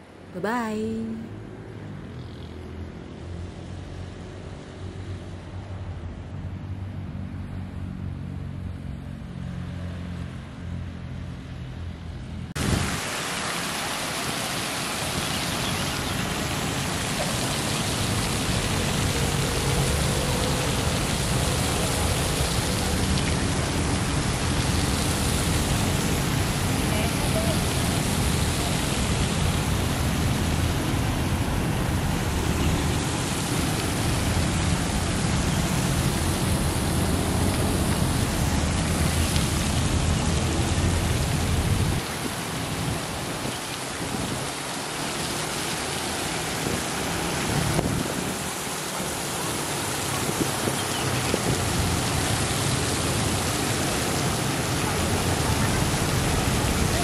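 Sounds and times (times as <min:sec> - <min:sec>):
fountain water splashing: 0:12.6 - 0:57.0.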